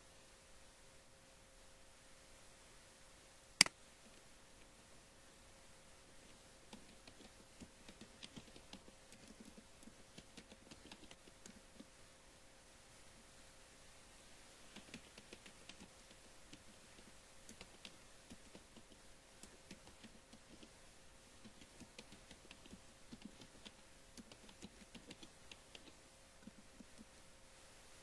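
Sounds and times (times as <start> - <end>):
faint steady hum: 0.0 - 28.0
typing on computer keyboard: 6.7 - 11.9, 14.7 - 20.7, 21.4 - 27.1.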